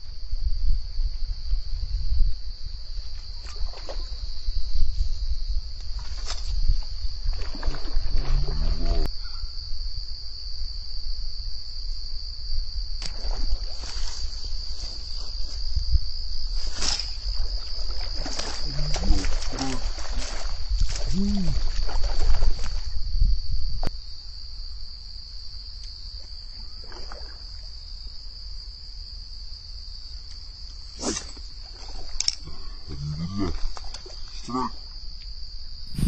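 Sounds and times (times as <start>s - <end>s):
high-pitched insect drone: 35.0s - 36.0s.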